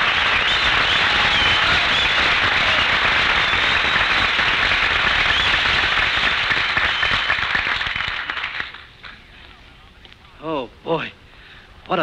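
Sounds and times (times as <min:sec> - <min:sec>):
audience applause: 0:00.0 - 0:09.2
short whistles: 0:00.4 - 0:04.2, 0:05.2 - 0:05.8.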